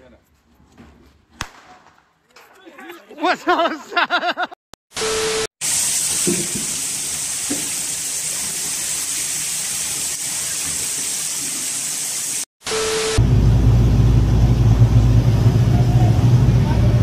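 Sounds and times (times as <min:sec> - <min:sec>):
water splashing onto flooded floor: 0:05.6 - 0:12.5.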